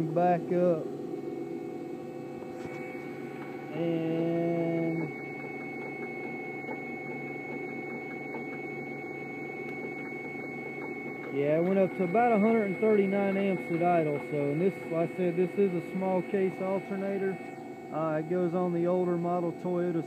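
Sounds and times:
alternator humming with high whine: 0.0s - 20.0s.

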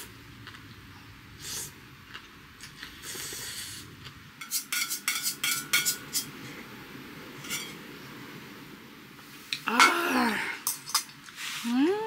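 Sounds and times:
utensil clinking on steel cup: 4.4s - 6.3s.

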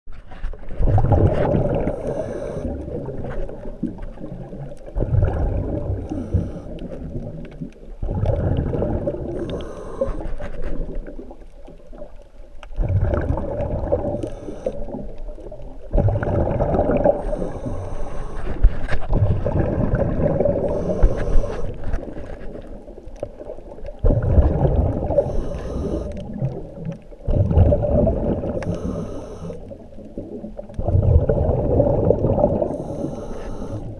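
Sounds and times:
diver exhaling bubbles underwater: 0.8s - 11.4s, 12.8s - 22.1s, 23.4s - 33.9s
regulator hissing: 25.2s - 26.1s.

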